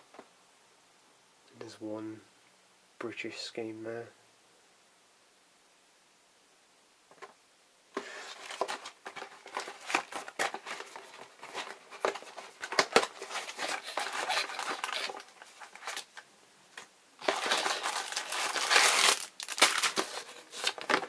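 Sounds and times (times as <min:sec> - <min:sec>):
cardboard box and paper rustling: 0:08.0 - 0:16.1, 0:17.2 - 0:21.0.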